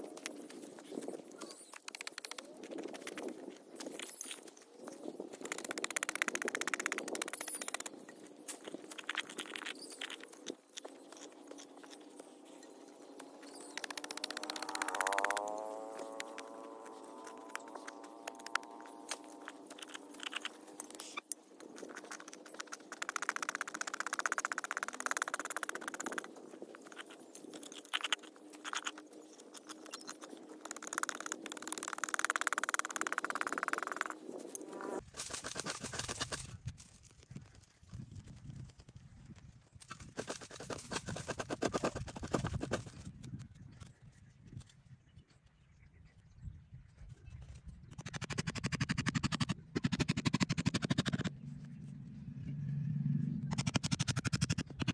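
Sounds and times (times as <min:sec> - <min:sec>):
hands scraping dry soil: 0:39.8 - 0:43.1.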